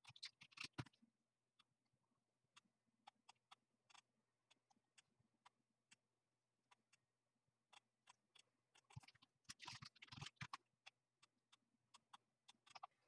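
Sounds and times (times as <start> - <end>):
computer mouse clicks: 7.7 - 13.0.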